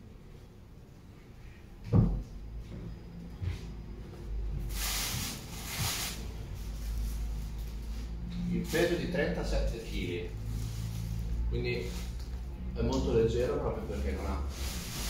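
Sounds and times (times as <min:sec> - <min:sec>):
plastic wrapping rustling: 0:04.7 - 0:09.2, 0:09.8 - 0:12.6, 0:13.8 - 0:15.0.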